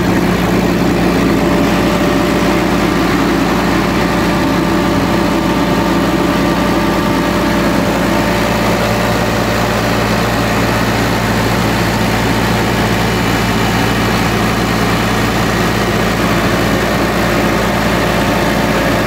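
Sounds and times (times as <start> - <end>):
refrigeration unit diesel engine: 0.0 - 19.0.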